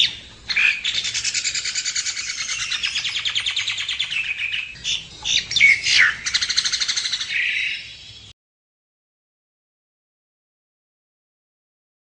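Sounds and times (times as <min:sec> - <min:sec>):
myna bird singing: 0:00.0 - 0:08.3.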